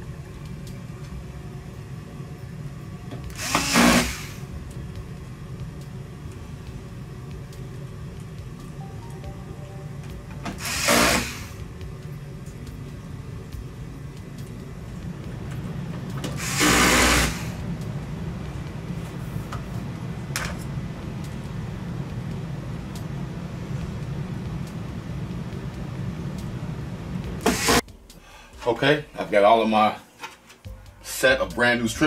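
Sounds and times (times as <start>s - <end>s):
steady low hum: 0.0s - 32.0s
electric screwdriver whirring: 3.3s - 4.4s, 10.6s - 11.5s, 16.4s - 17.5s.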